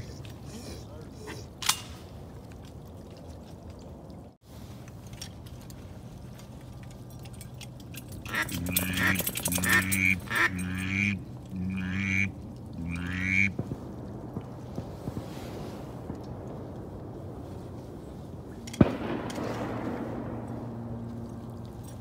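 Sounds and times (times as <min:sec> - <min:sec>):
duck quacking: 0:08.3 - 0:13.5.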